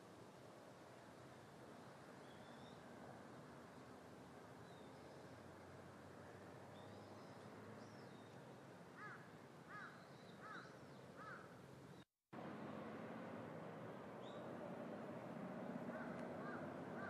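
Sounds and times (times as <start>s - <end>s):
faint outdoor hiss: 0.0s - 17.0s
small birds chirping: 6.7s - 12.1s
crow cawing: 9.0s - 11.5s, 15.9s - 17.0s.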